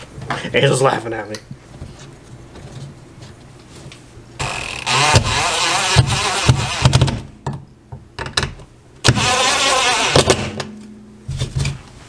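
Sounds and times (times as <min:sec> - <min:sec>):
cordless driver whirring: 0:04.4 - 0:07.2, 0:09.0 - 0:10.5.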